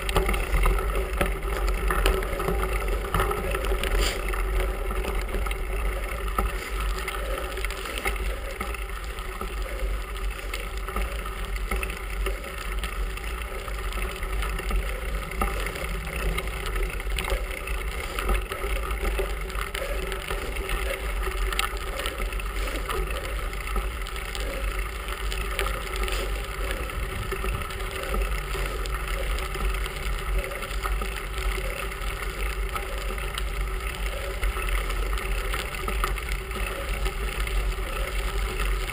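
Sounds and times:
bike rattling and ticking: 0:00.0 - 0:38.9.

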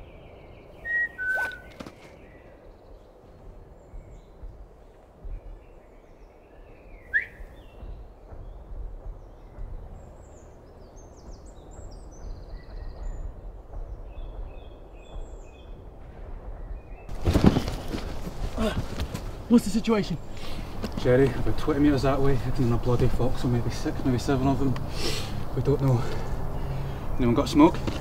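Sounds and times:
birds chirping and singing: 0:00.0 - 0:28.0
wind rumble: 0:00.0 - 0:28.0.

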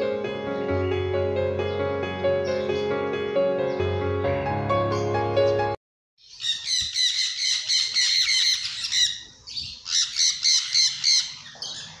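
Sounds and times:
birds chattering and squawking: 0:06.2 - 0:12.0.

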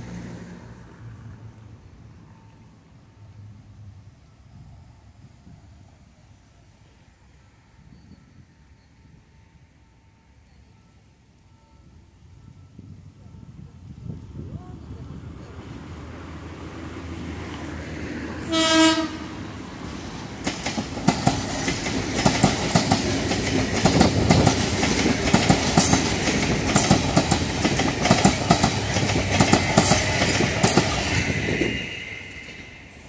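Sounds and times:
train horn blast: 0:18.4 - 0:19.6
wheels clattering over rail joints: 0:20.3 - 0:31.6.

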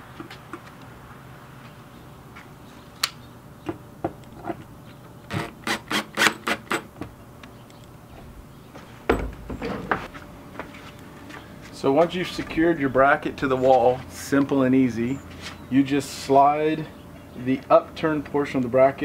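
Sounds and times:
low thump: 0:09.1 - 0:10.1.

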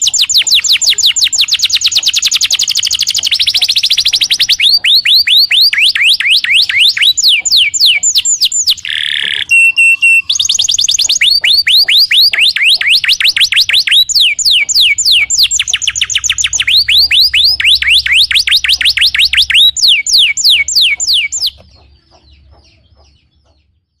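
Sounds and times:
canary singing trills: 0:00.0 - 0:24.0.

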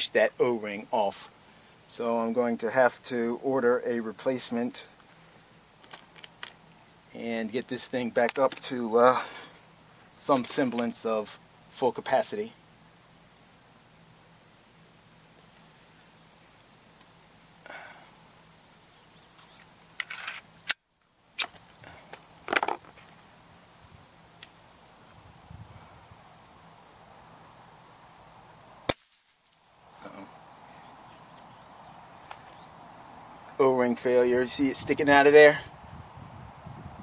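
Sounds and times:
insects droning: 0:00.0 - 0:37.0
air pistol clicks: 0:28.9 - 0:29.4
air pistol shot snaps: 0:28.9 - 0:29.4.

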